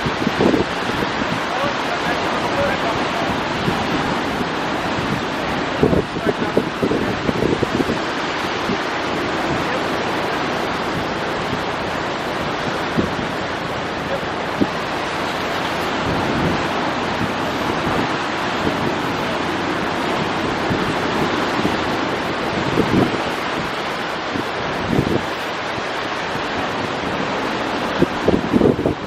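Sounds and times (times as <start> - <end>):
surf breaking on rocks: 0.0 - 29.0
wind on microphone: 0.0 - 29.0.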